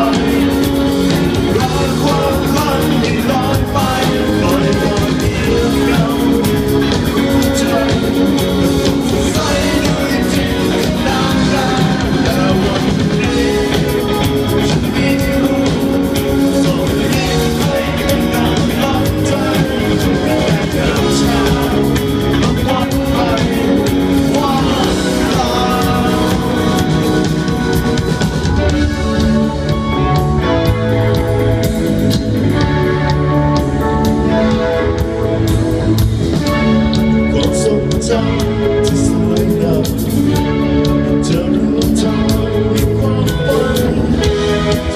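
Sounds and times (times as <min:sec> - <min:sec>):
man singing lead vocal: 0:00.0 - 0:29.5, 0:36.4 - 0:44.9
bass guitar: 0:00.0 - 0:44.9
drum kit: 0:00.0 - 0:44.9
electric guitar: 0:00.0 - 0:44.9.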